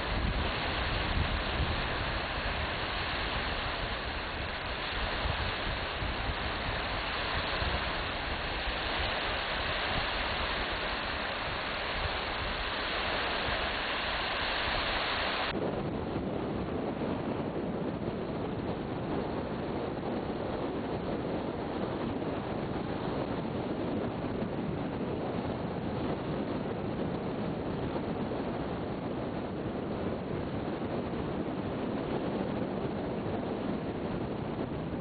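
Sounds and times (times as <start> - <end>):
wind blowing across microphone: 0.0 - 35.0.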